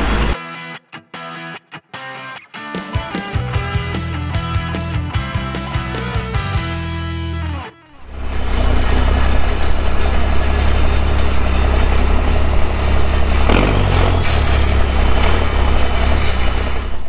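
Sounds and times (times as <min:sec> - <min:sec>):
truck engine running at low speed: 0:00.0 - 0:00.4, 0:08.0 - 0:17.0
music: 0:00.0 - 0:08.0.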